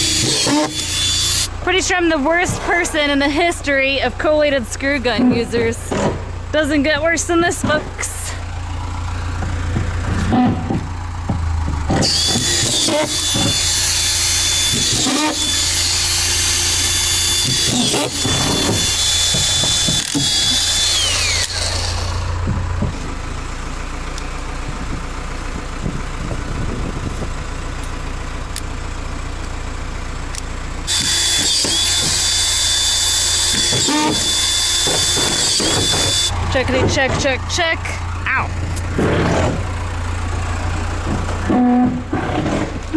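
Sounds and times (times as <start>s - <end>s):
screw gun whining: 0.0s - 1.5s, 11.9s - 22.3s, 30.9s - 36.4s.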